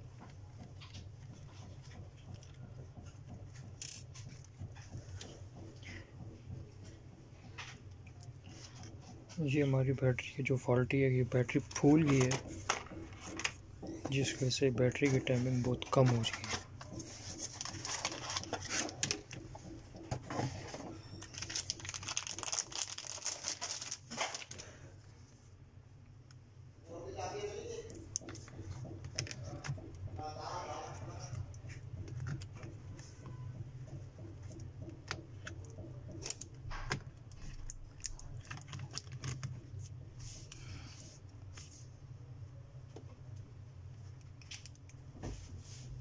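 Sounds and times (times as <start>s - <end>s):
plastic packaging crinkling: 21.1s - 24.8s, 37.4s - 39.6s.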